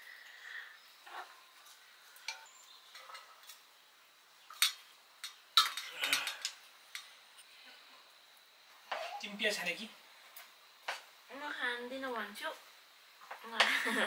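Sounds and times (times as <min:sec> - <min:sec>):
pot and utensils clinking: 0:04.5 - 0:06.6.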